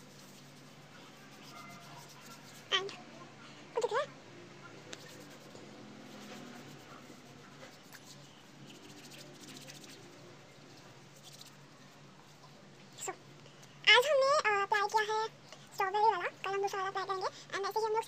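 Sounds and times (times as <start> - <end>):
hands rubbing skin: 0.0 - 2.7, 4.9 - 11.7
low room hum: 0.0 - 18.0.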